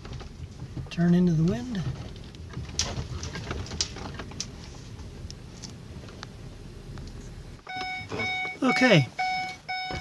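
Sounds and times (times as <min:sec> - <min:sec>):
van engine rumbling: 0:00.0 - 0:10.0
vehicle warning chime beeping: 0:07.6 - 0:10.0.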